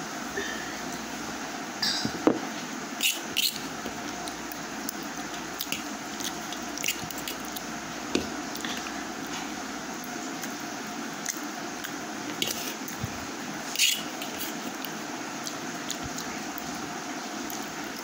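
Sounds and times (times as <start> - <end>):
room noise: 0.0 - 18.0
child chewing noodles: 3.0 - 9.6, 11.2 - 18.0
fork scraping steel plate: 13.7 - 14.6.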